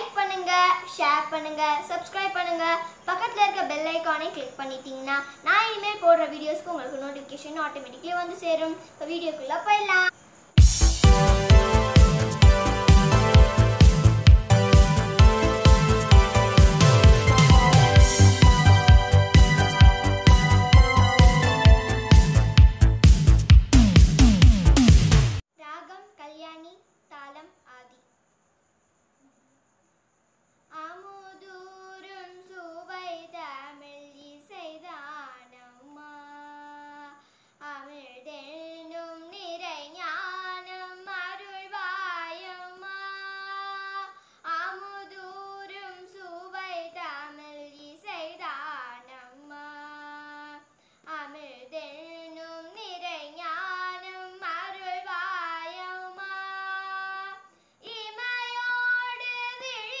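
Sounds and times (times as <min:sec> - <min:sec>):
girl singing: 0:00.0 - 0:10.2, 0:14.8 - 0:22.0, 0:30.7 - 1:00.0.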